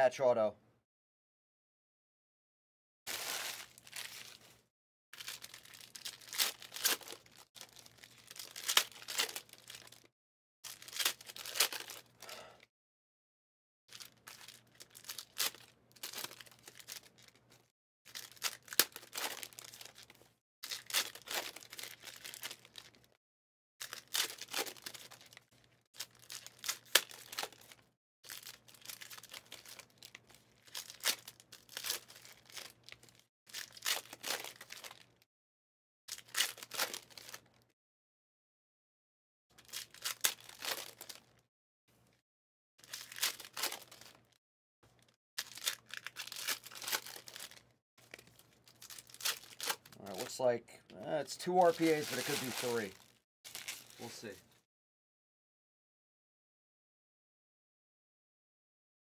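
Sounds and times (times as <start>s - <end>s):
wrappers torn open and crinkled: 3.1s - 4.6s, 5.2s - 12.2s, 13.9s - 23.2s, 23.8s - 35.2s, 36.1s - 37.6s, 39.6s - 41.4s, 42.8s - 44.4s, 45.0s - 50.4s, 51.2s - 54.4s.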